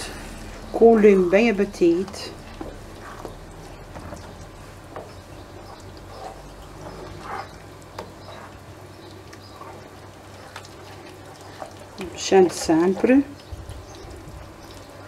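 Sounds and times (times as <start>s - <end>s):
wooden spoon stirring sauce in pan: 0.2s - 15.0s.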